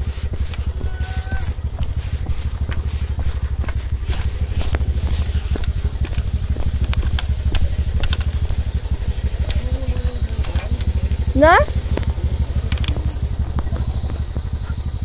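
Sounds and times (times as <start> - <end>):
engine running steadily: 0.0 - 15.0
clicks and rattles: 3.5 - 11.0.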